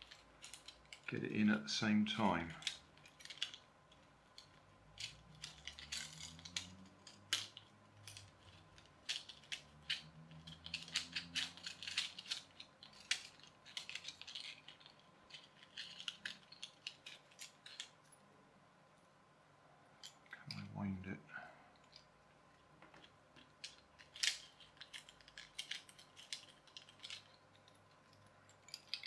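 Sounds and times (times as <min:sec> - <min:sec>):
plastic toy parts clicking and rattling: 0:00.0 - 0:01.4, 0:02.2 - 0:18.2, 0:20.0 - 0:20.8, 0:21.8 - 0:29.0.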